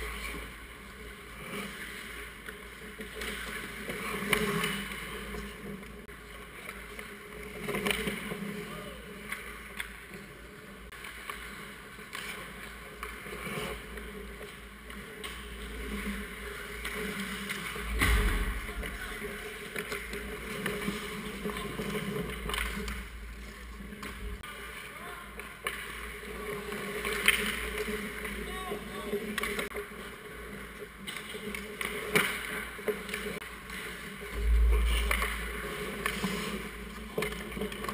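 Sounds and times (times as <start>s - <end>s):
hockey sticks and pucks clacking: 0.0s - 37.9s
skates scraping ice: 0.0s - 37.9s
dull thud: 17.8s - 19.2s.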